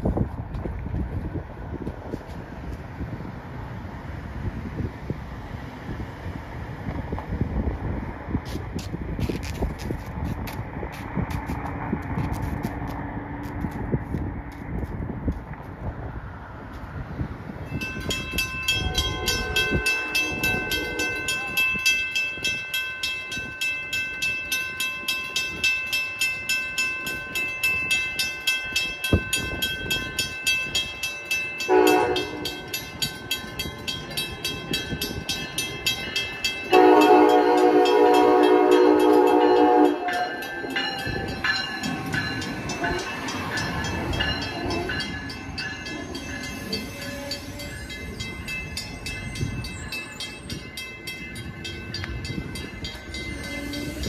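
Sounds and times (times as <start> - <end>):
train rumbling past: 0.0 - 54.0
crossing bell ringing: 16.8 - 54.0
train horn blasts: 18.7 - 21.6, 31.6 - 32.8, 36.6 - 41.2.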